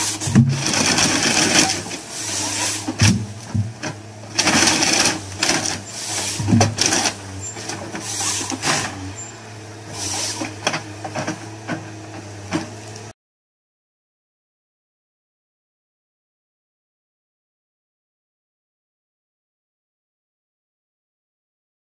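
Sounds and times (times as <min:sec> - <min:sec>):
chainsaw rasping through log: 0:00.0 - 0:12.8
harvester engine and hydraulics humming: 0:00.0 - 0:13.2.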